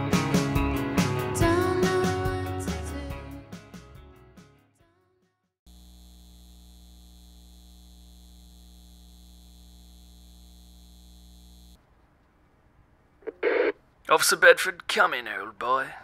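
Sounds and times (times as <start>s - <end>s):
electrical mains hum: 5.7s - 11.8s.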